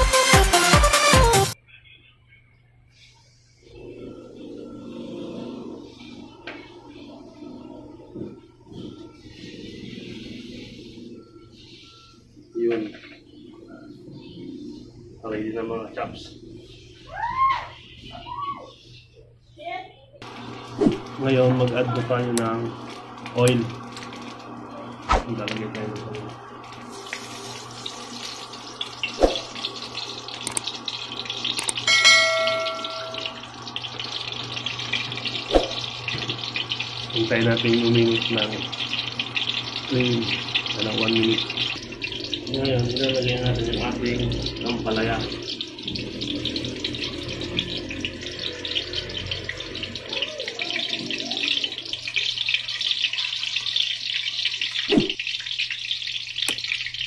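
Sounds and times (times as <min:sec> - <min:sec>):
oil pouring into frying pan: 0:22.6 - 0:57.0
low hum: 0:31.6 - 0:37.3, 0:38.6 - 0:50.4
bell chime: 0:31.8 - 0:33.5.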